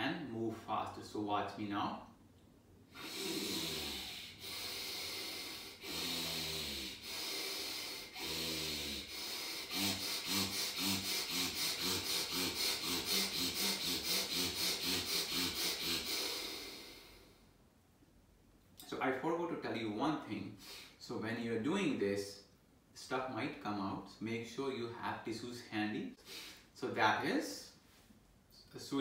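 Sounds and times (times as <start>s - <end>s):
forceful breathing through nostril: 2.9s - 17.4s, 26.2s - 26.7s.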